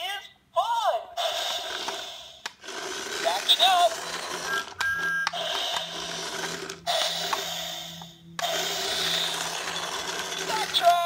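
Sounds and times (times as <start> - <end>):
toy train motor whirring: 1.2 - 11.0.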